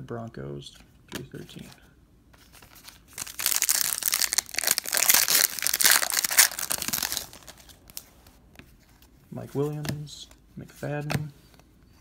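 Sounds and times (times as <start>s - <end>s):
plastic wrapper tearing and crinkling: 2.7s - 8.1s.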